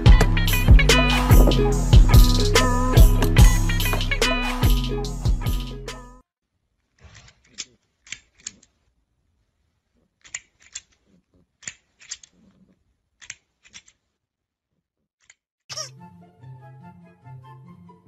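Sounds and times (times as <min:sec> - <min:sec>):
toy crocodile jaws clicking: 0:06.9 - 0:08.9, 0:10.1 - 0:14.2, 0:15.2 - 0:15.9.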